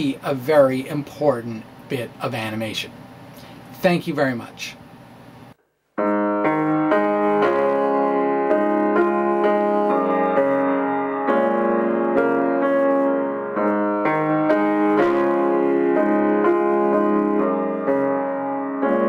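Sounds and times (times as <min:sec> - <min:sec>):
piano chords: 0:06.0 - 0:19.0.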